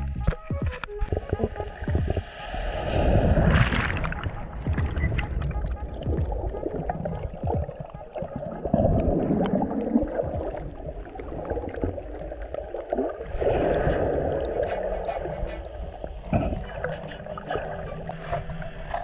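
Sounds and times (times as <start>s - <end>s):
underwater bubbling water: 0.1s - 19.0s
low rumble: 1.0s - 7.8s.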